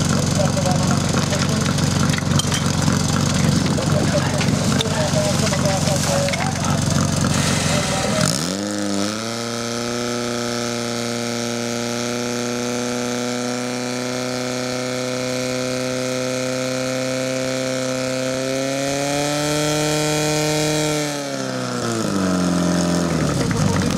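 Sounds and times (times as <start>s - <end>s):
fire pump engine running: 0.0s - 19.0s, 21.3s - 23.9s.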